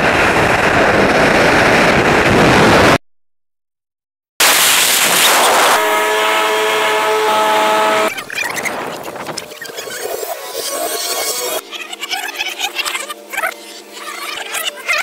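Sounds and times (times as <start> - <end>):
rushing freefall wind: 0.0 - 3.0.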